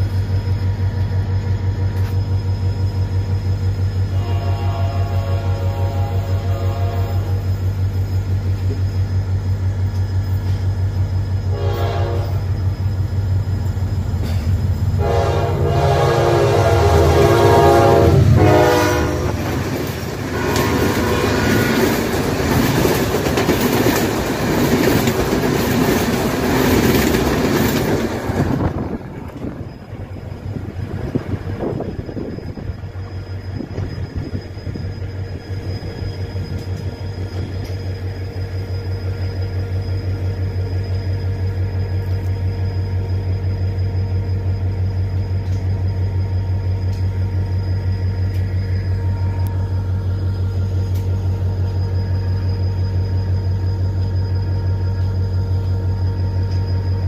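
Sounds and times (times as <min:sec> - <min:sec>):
rumble of moving train: 0:00.0 - 0:57.0
train coaches rushing past: 0:00.0 - 0:57.0
locomotive horn blasts: 0:04.1 - 0:07.5, 0:11.5 - 0:12.5, 0:15.0 - 0:22.0.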